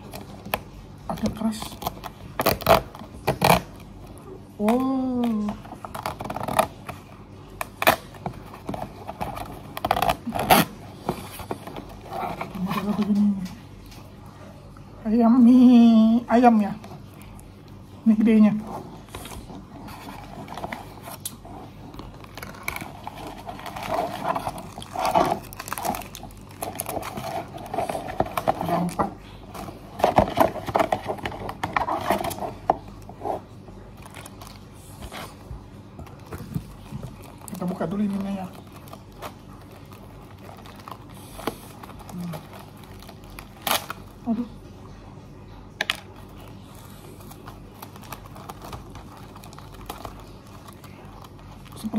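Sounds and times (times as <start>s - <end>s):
plastic wrapper crinkling: 0.0s - 14.2s, 16.7s - 44.5s, 45.8s - 51.9s
utensil clicks and scrapes: 18.6s - 35.4s.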